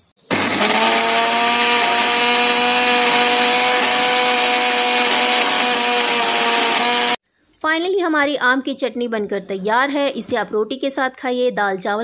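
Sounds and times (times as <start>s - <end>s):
mixer grinder running: 0.3s - 7.2s.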